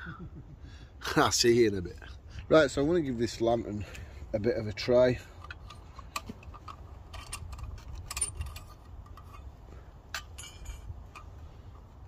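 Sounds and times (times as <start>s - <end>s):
metallic clicks of lantern handled: 5.4s - 11.9s
ringing metal taps: 10.1s - 11.4s.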